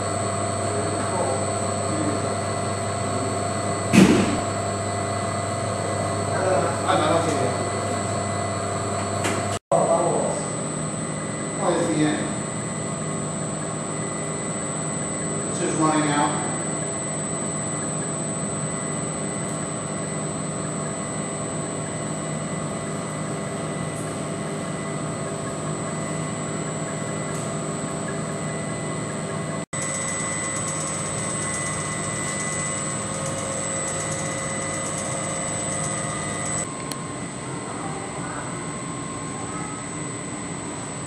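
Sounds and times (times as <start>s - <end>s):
machine motors and fans droning: 0.0s - 41.0s
thin high whine: 9.8s - 23.1s, 29.8s - 41.0s.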